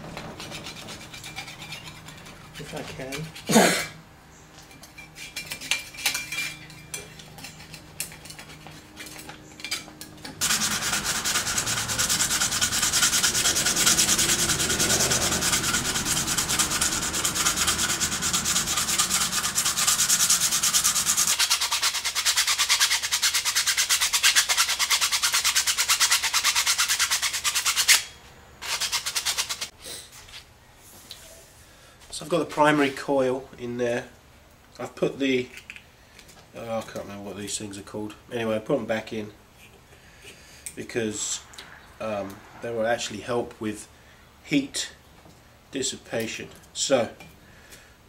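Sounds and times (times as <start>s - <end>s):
sandpaper rubbing on steel: 0.2s - 3.5s, 10.4s - 29.8s
knife blade scraping steel: 0.4s - 3.6s, 4.6s - 29.7s.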